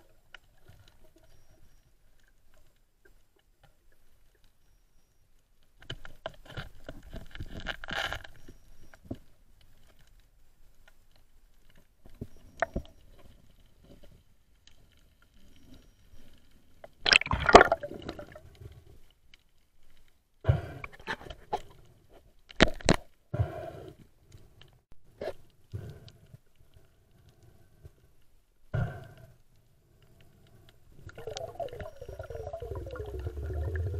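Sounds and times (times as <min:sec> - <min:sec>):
bursts of water noise: 0:17.0 - 0:18.5, 0:31.0 - 0:33.9
sharp underwater clicks and knocks: 0:22.5 - 0:23.2.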